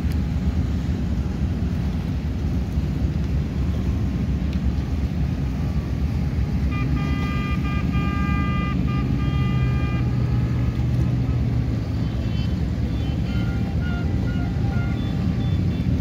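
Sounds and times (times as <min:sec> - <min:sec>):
boat engines rumbling: 0:00.0 - 0:16.0
boat horns honking: 0:03.4 - 0:16.0.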